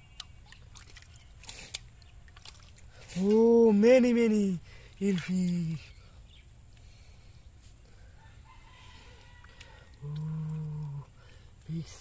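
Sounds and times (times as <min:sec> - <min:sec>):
rooster crowing: 0:08.2 - 0:10.0.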